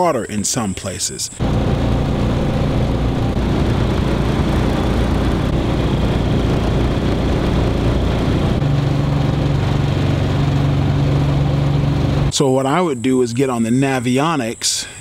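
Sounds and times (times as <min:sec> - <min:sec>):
boat motor running: 0:01.4 - 0:12.3.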